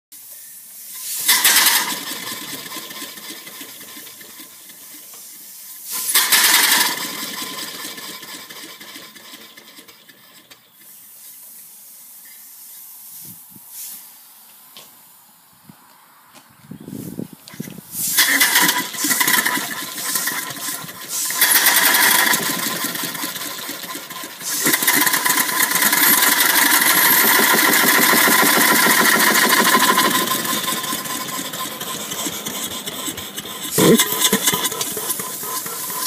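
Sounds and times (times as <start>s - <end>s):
steam hiss and exhaust chuffs: 0.2s - 14.3s, 16.9s - 36.0s
steam engine running: 0.8s - 10.6s, 17.9s - 36.0s.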